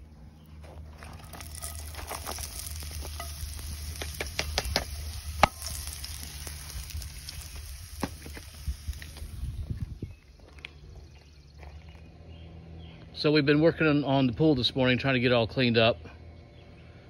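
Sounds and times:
oil popping and crackling: 0.8 - 10.6
fries sizzling in hot oil: 1.2 - 9.7.

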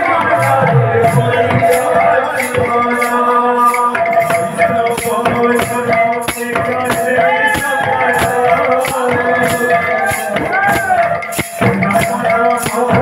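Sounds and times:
barrel drum beating: 0.0 - 3.0
held notes: 0.0 - 5.5
jingling metal cymbals: 0.0 - 13.0
man singing: 0.0 - 13.0.

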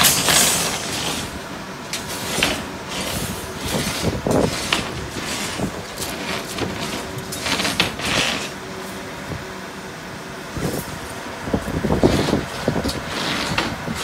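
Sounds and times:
bursts of hiss and clatter: 0.0 - 8.6
steady mechanical background: 0.0 - 14.0.

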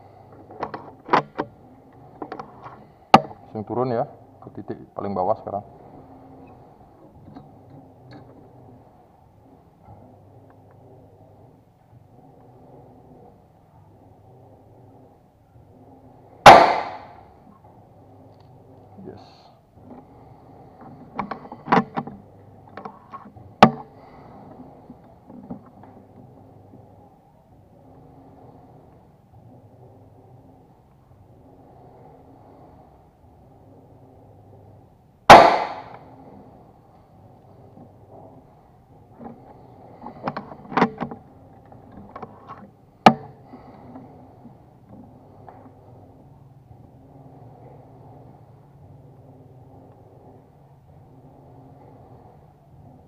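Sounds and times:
air rifle shot: 16.4 - 17.2, 35.3 - 36.0.

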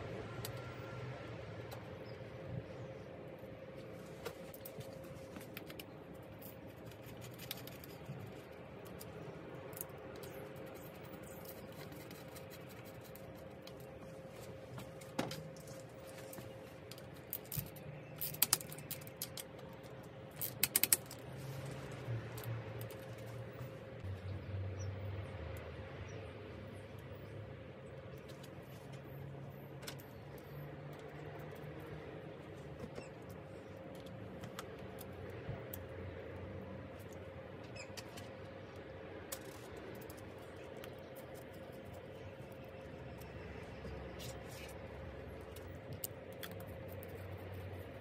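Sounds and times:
faint steady hum: 0.0 - 48.0
bicycle parts clicking: 16.3 - 23.4.

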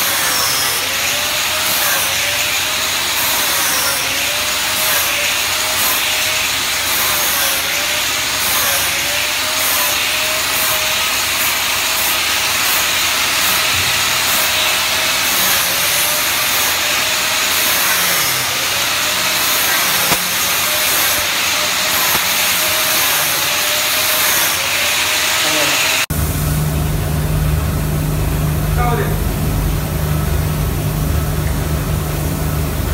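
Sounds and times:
rotary tool grinding metal: 0.0 - 26.1.

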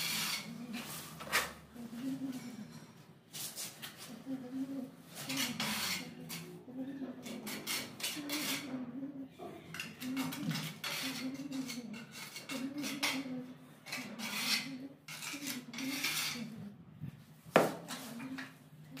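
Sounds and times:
steel trowel scraping tiles: 0.0 - 1.6, 5.1 - 6.6, 7.2 - 8.8, 9.8 - 16.6.

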